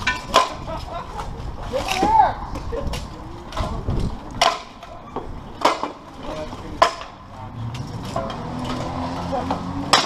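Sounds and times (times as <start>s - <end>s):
metallic clanks of armour and weapons: 5.6s - 10.0s.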